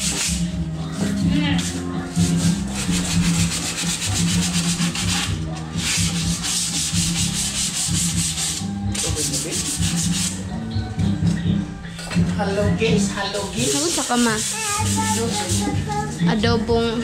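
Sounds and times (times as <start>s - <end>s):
sandpaper rubbing on wood: 0.0s - 10.4s, 13.4s - 16.1s.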